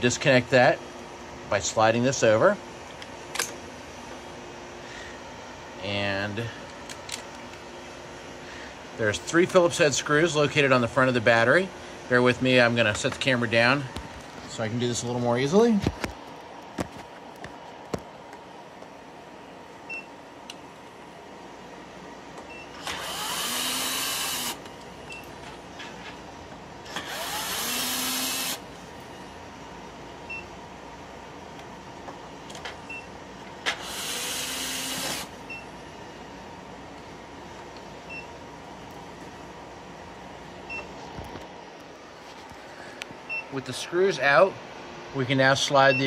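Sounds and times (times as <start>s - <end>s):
steady background hum: 0.0s - 46.0s
electric drill whining: 22.8s - 24.6s, 26.9s - 28.6s, 33.8s - 35.3s.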